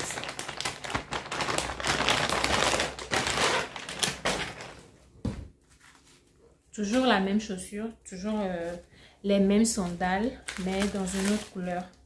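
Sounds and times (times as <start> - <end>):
plastic bag tearing and crinkling: 0.0 - 4.8, 9.8 - 11.9.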